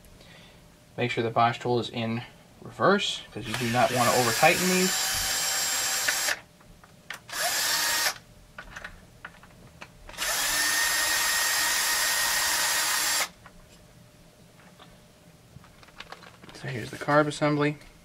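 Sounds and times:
electric driver whirring: 3.4 - 6.5, 7.2 - 8.2, 10.1 - 13.4.

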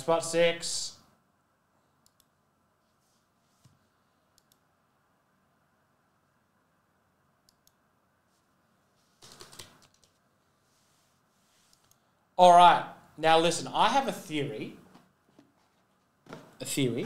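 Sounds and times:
computer mouse clicks: 2.0 - 2.4, 3.6 - 4.7, 7.4 - 7.8, 11.7 - 12.0.

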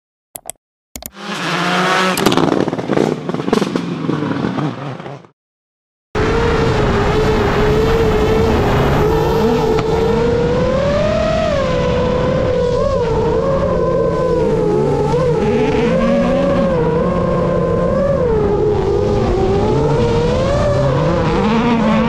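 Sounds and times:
engine revving with sharp cracks: 1.0 - 5.3, 6.2 - 22.0
drone motors whining: 6.2 - 22.0.

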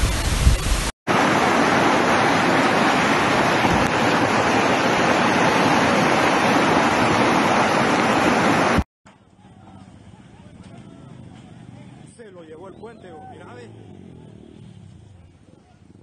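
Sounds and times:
rushing floodwater: 0.6 - 8.9.

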